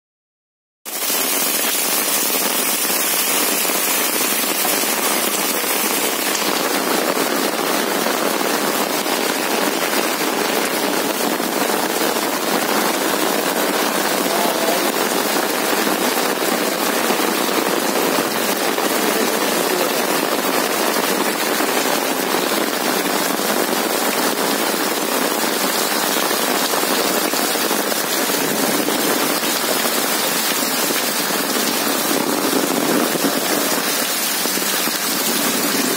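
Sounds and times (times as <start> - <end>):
heavy rain splashing into water: 0.9 - 35.9.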